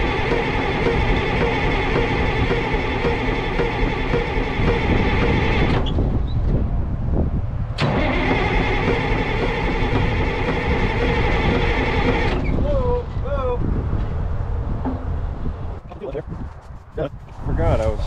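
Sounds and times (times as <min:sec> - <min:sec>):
bulldozer engine droning: 0:00.0 - 0:06.8, 0:07.8 - 0:12.6.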